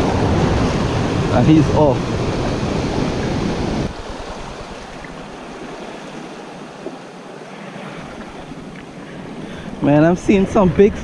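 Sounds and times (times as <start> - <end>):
wind rumble on microphone: 0.0 - 7.0, 7.9 - 11.0
surf washing over rocks: 0.0 - 11.0
water lapping: 0.0 - 11.0.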